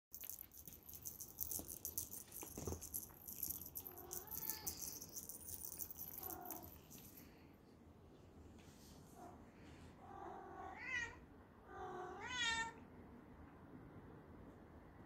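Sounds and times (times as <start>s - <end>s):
high-pitched clicking and rattling: 0.1s - 7.2s
cat meowing: 10.2s - 12.8s.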